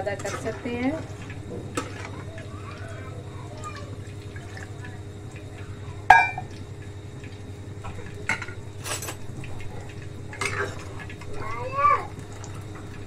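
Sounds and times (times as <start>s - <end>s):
steady low hum: 0.0s - 13.0s
metal utensils clinking on pan: 6.1s - 6.4s.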